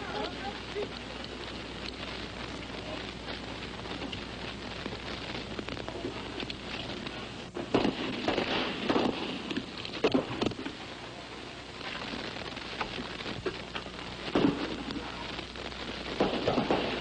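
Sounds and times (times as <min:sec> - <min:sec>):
film sound hiss: 0:00.0 - 0:17.0
gunshots: 0:07.6 - 0:10.7, 0:14.3 - 0:15.1, 0:16.1 - 0:17.0.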